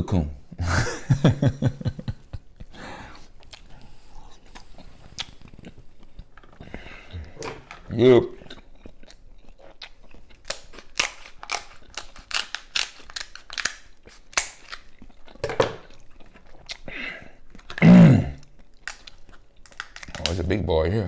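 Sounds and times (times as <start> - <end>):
close chewing: 2.6 - 7.4, 8.3 - 17.8, 18.4 - 20.3
crab shell cracking: 10.3 - 15.8, 18.7 - 20.4.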